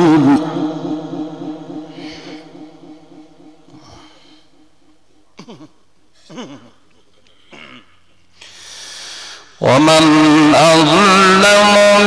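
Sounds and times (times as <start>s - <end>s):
breathy hiss: 8.4s - 9.6s.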